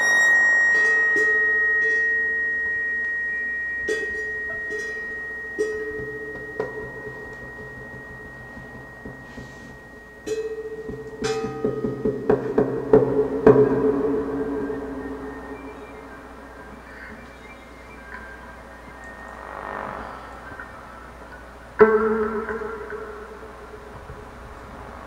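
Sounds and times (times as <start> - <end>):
high ringing tone: 0.0 - 25.0
low struck or plucked notes: 0.0 - 25.0.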